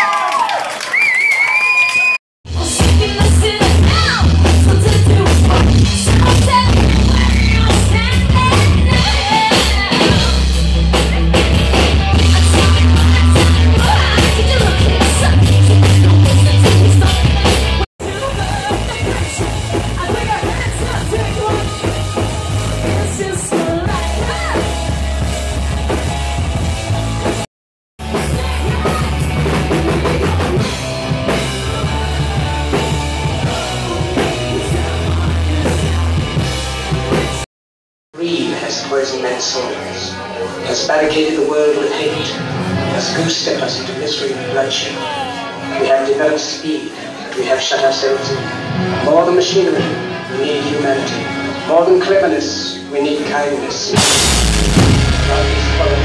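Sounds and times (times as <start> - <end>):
heavy bass: 2.5 - 37.5, 53.9 - 56.0
woman singing: 2.6 - 10.6, 12.2 - 24.7
pounding drums: 54.0 - 56.0.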